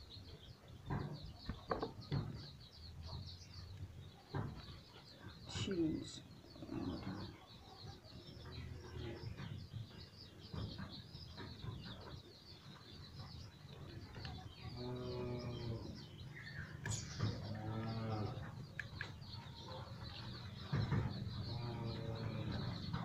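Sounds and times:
chicks peeping: 0.0 - 23.0
deep drawn-out animal call: 6.2 - 7.6, 14.7 - 18.6, 19.6 - 23.0.

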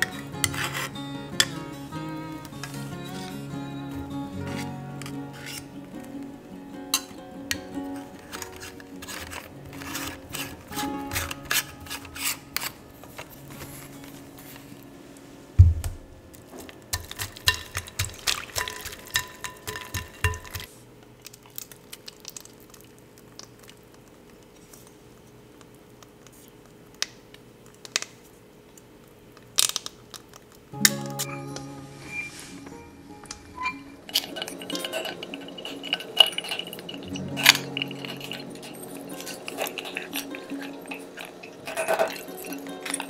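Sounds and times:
metal clicks and scrapes: 7.0 - 13.3, 33.6 - 43.0
heavy thump: 15.6 - 16.1.

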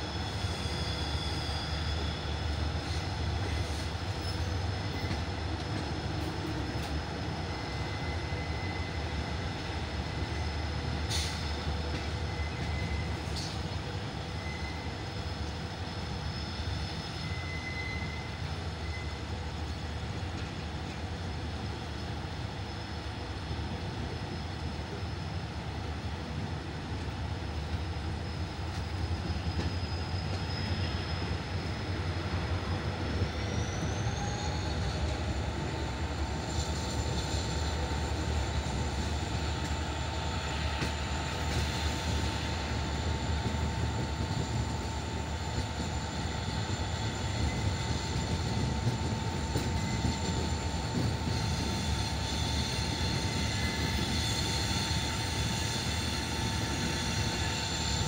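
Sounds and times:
train rumbling on track: 0.0 - 58.0.

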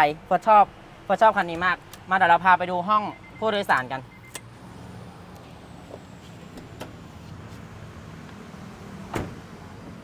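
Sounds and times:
car door latch opening: 9.1 - 9.4.

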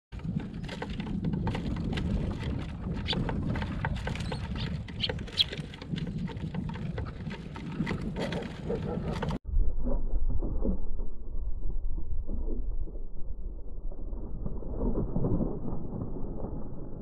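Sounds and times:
birds pecking on wooden tray: 0.2 - 9.4
birds chirping: 2.9 - 6.4.

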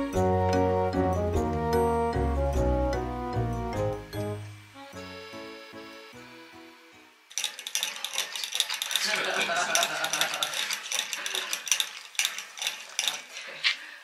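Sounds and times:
dog drinking from water bottle: 7.6 - 13.8.

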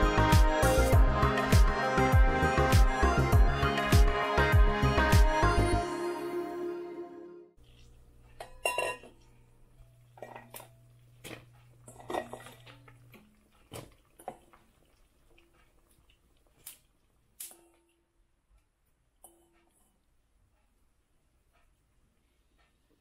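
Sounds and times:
low steady hum: 7.6 - 22.9
cookware and utensils clinking: 8.3 - 15.5.

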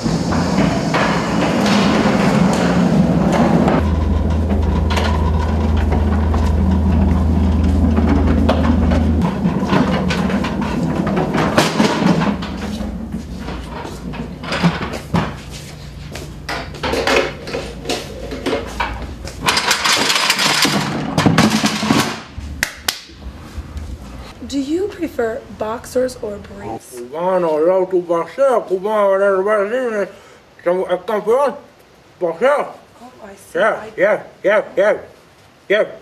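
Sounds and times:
rushing noise: 0.0 - 26.6
steady low hum: 0.0 - 27.7
knocks and clatter of equipment: 3.3 - 15.5, 16.5 - 22.3.

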